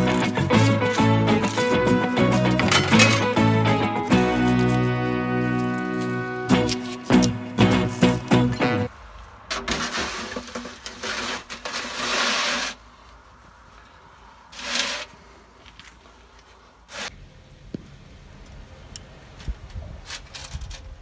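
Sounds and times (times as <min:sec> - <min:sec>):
metal tray scraping oven floor: 0:09.5 - 0:12.8.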